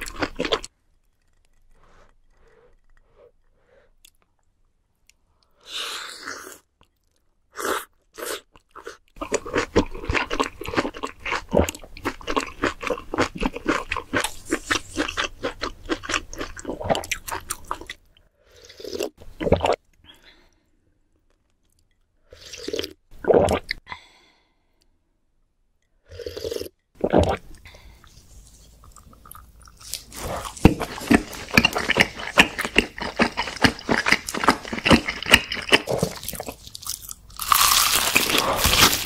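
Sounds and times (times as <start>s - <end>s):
slurping: 26.1s - 36.8s, 37.7s - 39.0s
crunchy wet chewing: 28.8s - 39.0s.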